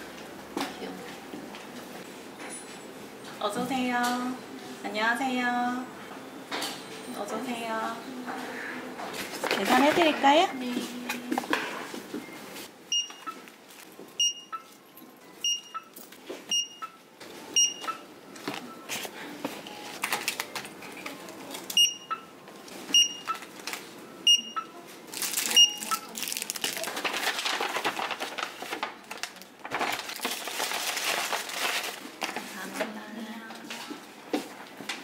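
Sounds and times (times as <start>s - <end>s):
barcode scanner beeping: 12.9s - 13.4s, 14.2s - 14.7s, 15.4s - 18.9s, 21.7s - 22.3s, 22.9s - 23.5s, 24.1s - 24.8s, 25.5s - 26.2s
shopping bags rustling: 25.0s - 32.8s.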